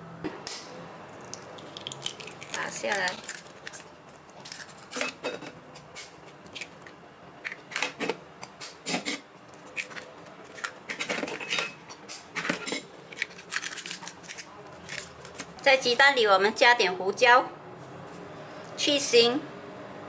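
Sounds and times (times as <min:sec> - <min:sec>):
spoon cracking eggshells: 0:01.2 - 0:03.9.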